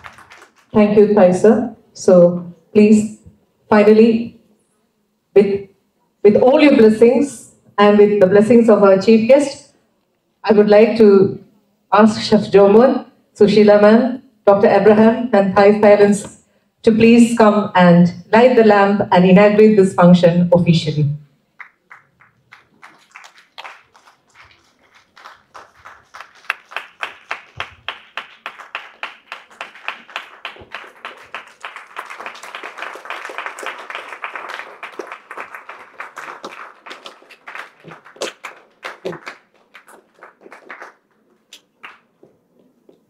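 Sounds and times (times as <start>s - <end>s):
audience clapping: 0.0s - 0.8s, 21.6s - 42.7s.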